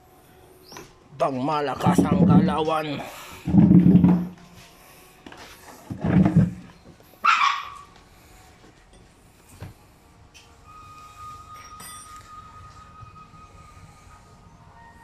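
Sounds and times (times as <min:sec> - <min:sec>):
dog barking: 0:07.2 - 0:07.8.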